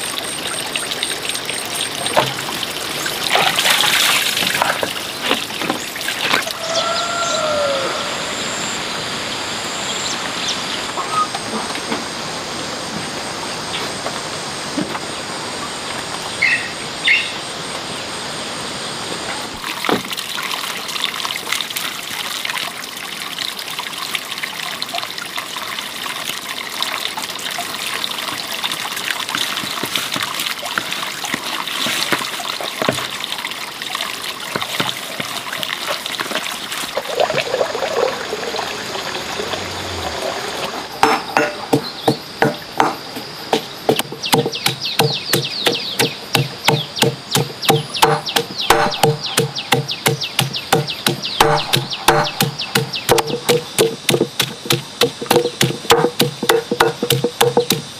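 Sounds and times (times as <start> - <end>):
water trickling and splashing: 0.0 - 6.8, 19.4 - 57.9
quick regular knocks: 41.0 - 57.9.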